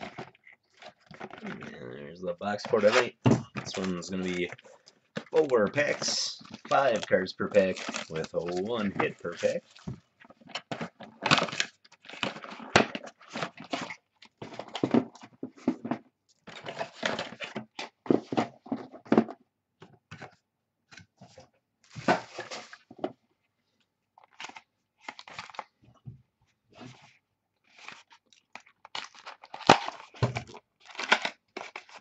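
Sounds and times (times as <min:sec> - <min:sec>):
card wrapper tearing and crinkling: 0:00.0 - 0:15.1, 0:24.2 - 0:25.7, 0:27.7 - 0:32.0
cards rustling: 0:00.0 - 0:18.8, 0:24.2 - 0:25.7, 0:26.8 - 0:32.0.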